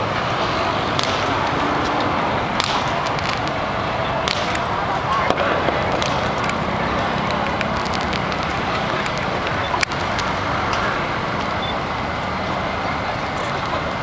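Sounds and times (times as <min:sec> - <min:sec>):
crowd hubbub: 0:00.0 - 0:14.0
sharp cracks: 0:00.2 - 0:11.5.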